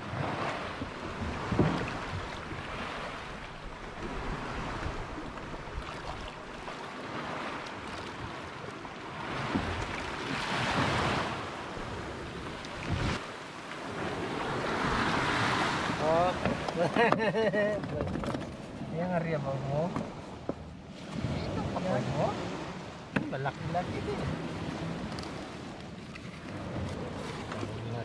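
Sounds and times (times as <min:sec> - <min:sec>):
sea waves splashing: 0:00.0 - 0:28.0
wind buffeting microphone: 0:09.1 - 0:13.3.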